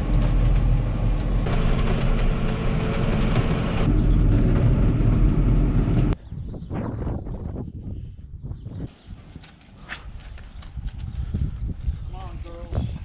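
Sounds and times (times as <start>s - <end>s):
tractor diesel engine running: 0.0s - 6.2s.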